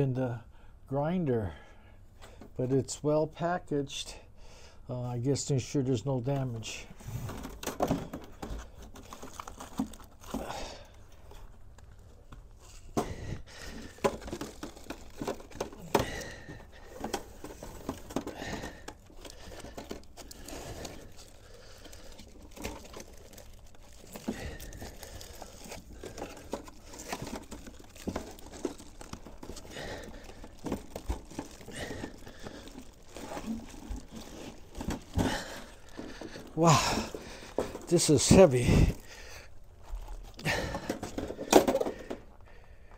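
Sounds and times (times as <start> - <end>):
foam packing rustling: 6.3 - 42.4
plastic wrapping crinkling: 8.3 - 12.9, 13.5 - 42.1.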